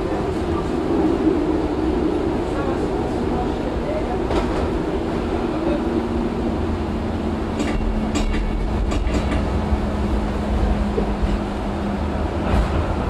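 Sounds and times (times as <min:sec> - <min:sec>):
tram rumble and hum: 0:00.0 - 0:13.0
wheels clicking on track: 0:07.6 - 0:09.7.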